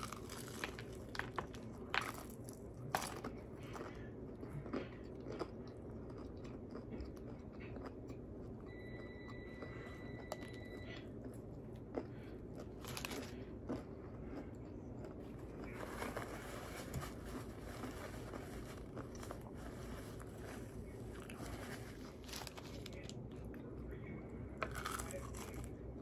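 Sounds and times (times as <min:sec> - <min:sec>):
crunches of crispy breading: 0:00.0 - 0:07.4, 0:24.6 - 0:25.9
chewing with wet mouth sounds: 0:00.0 - 0:16.0.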